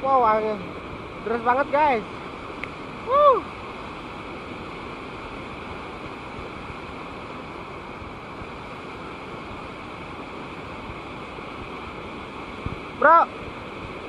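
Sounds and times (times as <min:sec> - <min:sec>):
stream rushing over rocks: 0:00.0 - 0:14.0.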